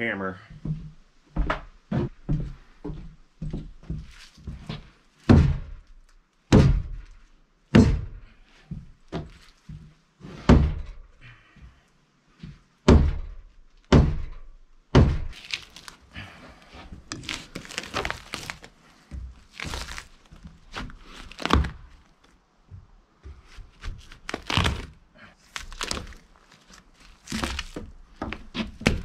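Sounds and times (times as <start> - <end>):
hammer striking timber: 6.5 - 7.0, 7.7 - 8.2, 12.8 - 15.4
knife scraping bark from log: 16.6 - 22.1, 23.8 - 27.8.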